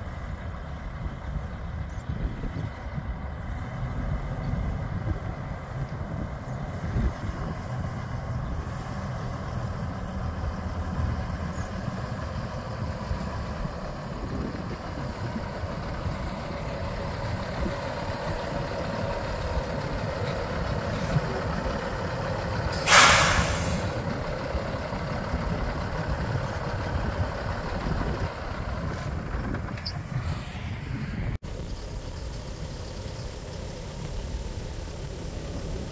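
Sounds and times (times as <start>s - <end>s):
diesel truck engine idling: 0.0s - 35.9s
air brake hiss: 22.7s - 24.0s.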